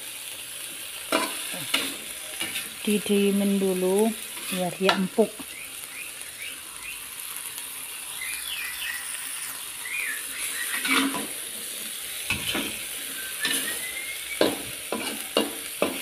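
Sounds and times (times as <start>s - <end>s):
food sizzling in a wok: 0.0s - 16.0s
metal spatula scraping wok: 1.1s - 5.2s, 9.3s - 16.0s.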